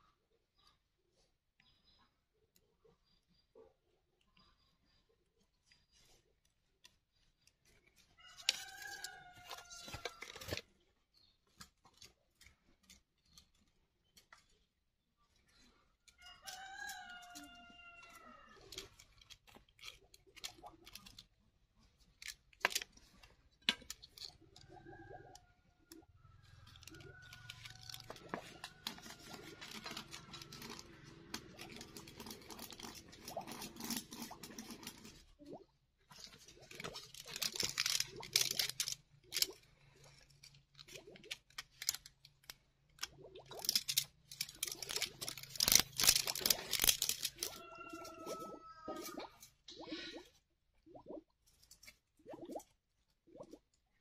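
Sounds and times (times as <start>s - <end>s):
rooster crowing: 16.2s - 18.5s, 47.4s - 49.4s.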